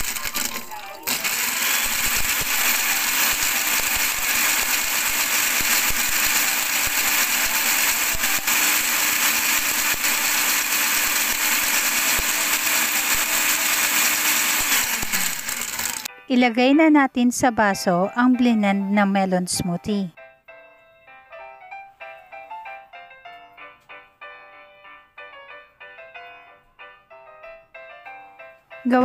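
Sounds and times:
blender motor running: 0:00.0 - 0:16.1.

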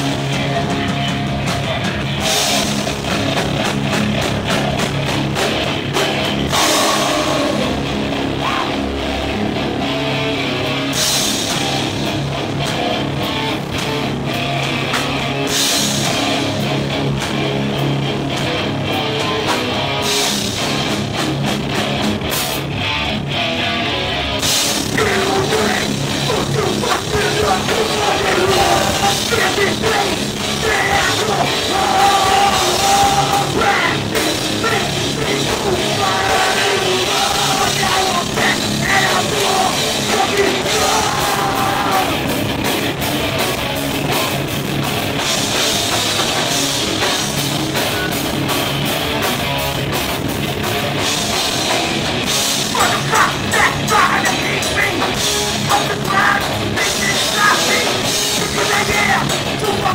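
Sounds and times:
loud hardcore band playing: 0:00.0 - 0:59.9
vocalist shouting into microphone: 0:06.6 - 0:08.9, 0:24.9 - 0:42.2, 0:52.7 - 0:59.9.

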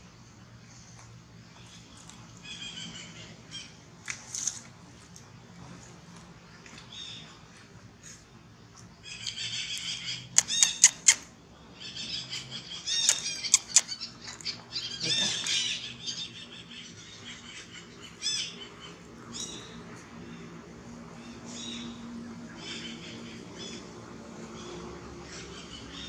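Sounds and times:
birds chirping: 0:06.6 - 0:26.0
sharp clicks: 0:10.4 - 0:11.3, 0:13.0 - 0:13.9.

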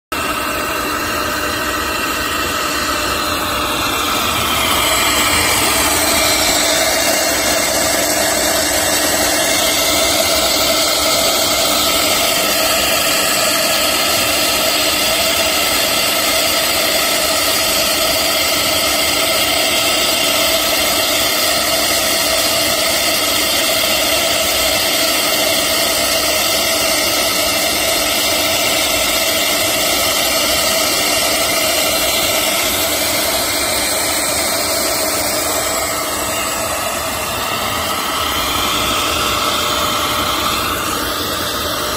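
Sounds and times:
router spindle whine: 0:00.1 - 0:41.9
gliding machine tones: 0:00.2 - 0:15.9, 0:29.2 - 0:41.9.

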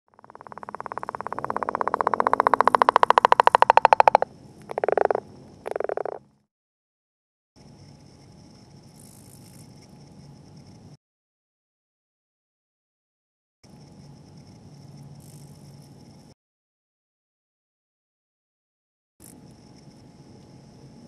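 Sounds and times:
frog rattling call: 0:00.1 - 0:06.3
frog grunts: 0:00.2 - 0:06.2.

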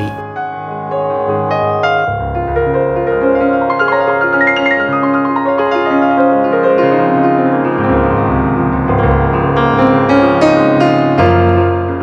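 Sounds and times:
piano background music: 0:00.0 - 0:12.0.

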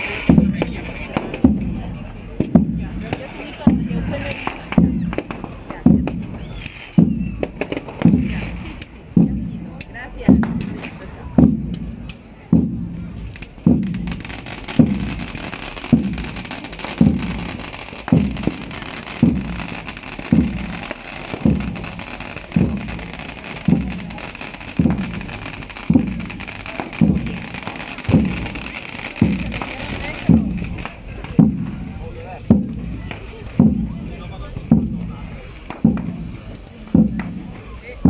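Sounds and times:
deep drum beat: 0:00.0 - 0:38.0
steady high hiss: 0:10.6 - 0:38.0.

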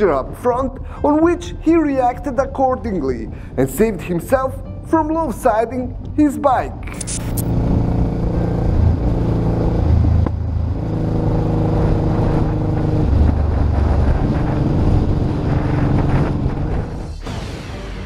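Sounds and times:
road rumble: 0:00.0 - 0:17.2
short click: 0:06.8 - 0:07.5
wind: 0:06.8 - 0:17.2
motorcycle engine running: 0:07.0 - 0:17.0.

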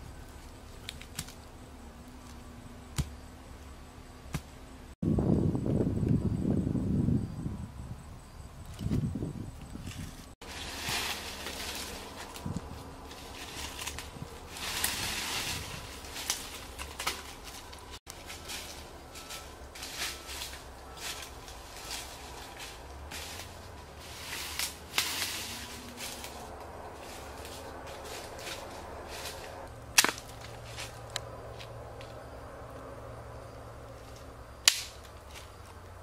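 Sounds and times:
twigs snapping: 0:00.8 - 0:01.5, 0:09.9 - 0:23.6, 0:24.3 - 0:32.2, 0:34.1 - 0:35.8
dry leaves crackling and rustling: 0:09.8 - 0:32.1.

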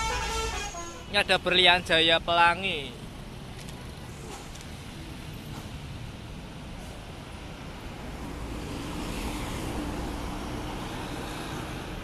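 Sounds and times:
road traffic: 0:00.0 - 0:12.0
bus driving past: 0:03.0 - 0:12.0.

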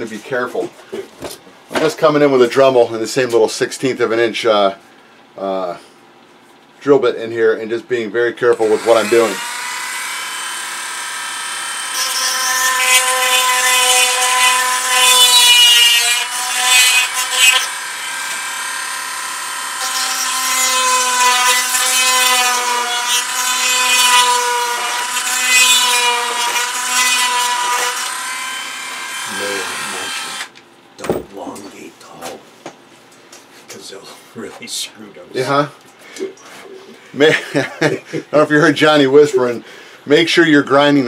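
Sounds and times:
drill bit grinding: 0:08.5 - 0:30.5.

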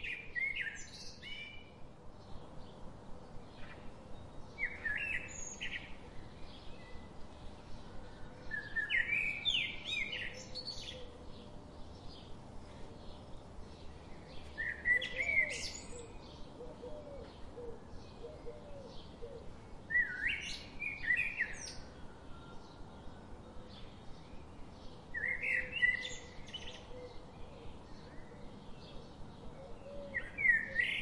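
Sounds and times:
songbird singing loud phrase: 0:00.0 - 0:31.0.

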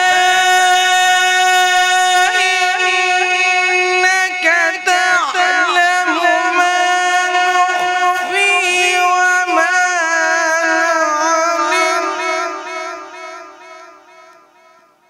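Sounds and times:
man chanting melodic recitation: 0:00.0 - 0:14.7.

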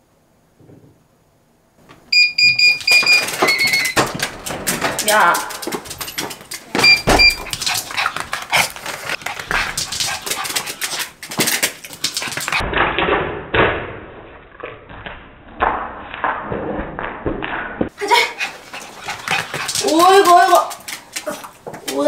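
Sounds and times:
short electronic beeps: 0:02.1 - 0:04.0, 0:06.8 - 0:07.5.

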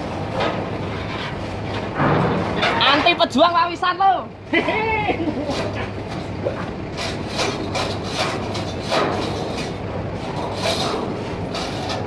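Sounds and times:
steady low hum: 0:00.0 - 0:12.0
rasping scraping strokes: 0:06.9 - 0:12.0.

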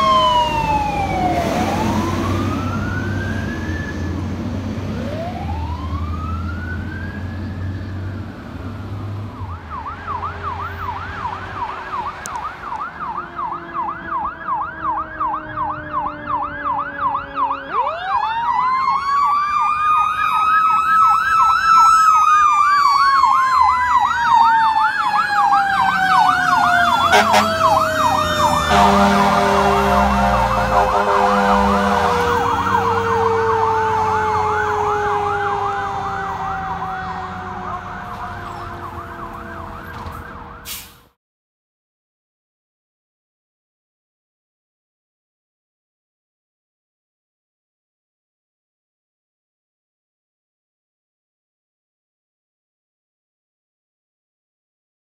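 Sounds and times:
electronic siren wail and yelp: 0:00.0 - 0:04.2, 0:05.0 - 0:07.9, 0:09.4 - 0:40.7
horn blasts: 0:27.0 - 0:33.6.

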